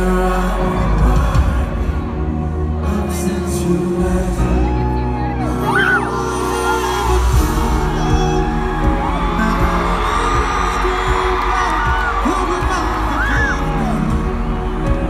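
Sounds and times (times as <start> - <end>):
live instrumental music: 0.0 - 15.0
fans whooping and cheering: 4.5 - 15.0.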